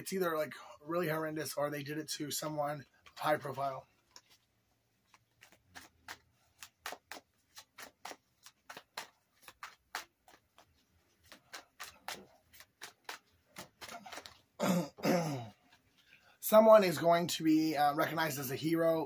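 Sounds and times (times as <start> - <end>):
cards being shuffled by hand: 2.8 - 14.6.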